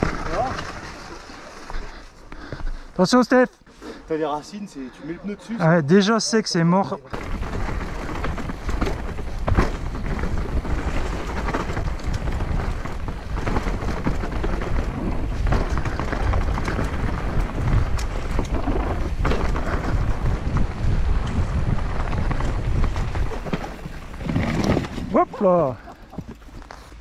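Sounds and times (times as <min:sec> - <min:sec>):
bike knocks and rattles: 0:00.0 - 0:01.2, 0:07.2 - 0:27.0
wind rushing on microphone: 0:07.2 - 0:25.2.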